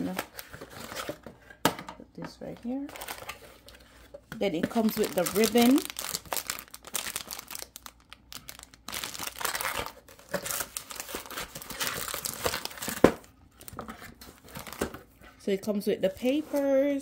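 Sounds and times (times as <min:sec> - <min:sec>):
cardboard packaging rustling: 0:00.0 - 0:01.7, 0:02.7 - 0:15.4
plastic wrapping crinkling: 0:02.7 - 0:03.8, 0:04.5 - 0:15.2.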